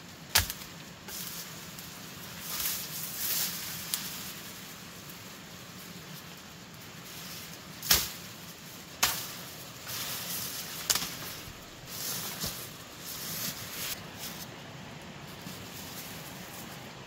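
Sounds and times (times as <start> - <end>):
leaves rustling: 0.0 - 17.0
knife chopping through brush: 0.3 - 0.7, 7.8 - 8.2, 9.0 - 9.4.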